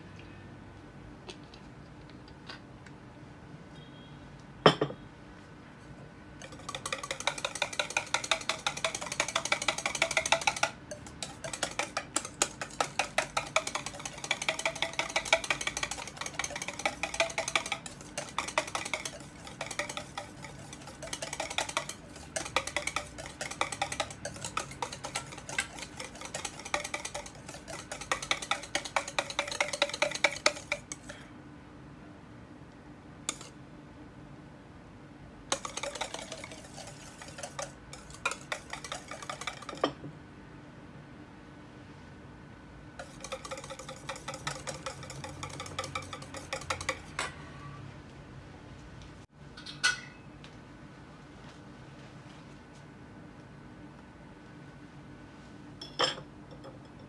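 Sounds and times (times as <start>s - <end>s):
whisk clicking in steel bowl: 6.4s - 31.2s, 33.3s - 33.5s, 35.5s - 40.0s, 43.0s - 47.2s.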